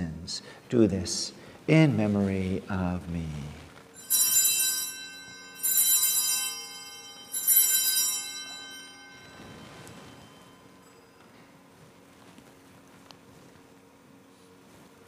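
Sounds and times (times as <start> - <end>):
altar bells ringing: 3.9 - 11.8.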